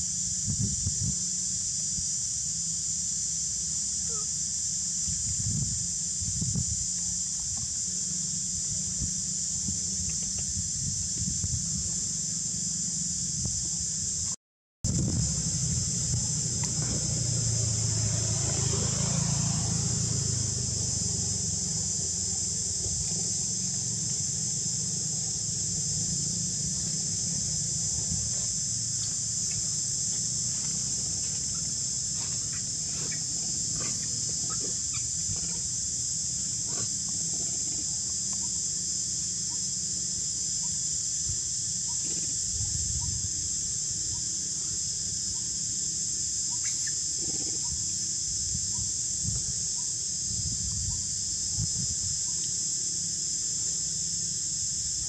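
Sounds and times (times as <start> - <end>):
insect chorus drone: 0.0 - 55.0
low rumble: 14.9 - 32.1.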